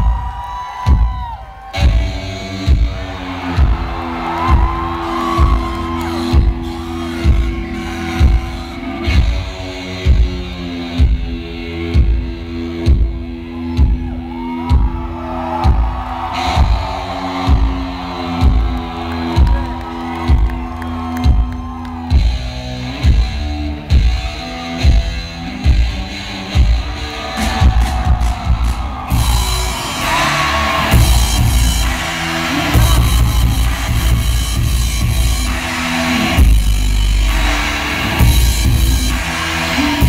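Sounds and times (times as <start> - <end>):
loud distorted live band: 0.0 - 40.0
heavy booming beats: 26.6 - 40.0.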